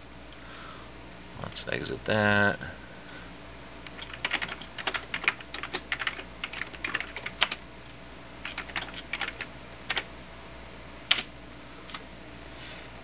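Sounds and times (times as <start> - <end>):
typing on computer keyboard: 3.9 - 7.6, 8.4 - 10.1.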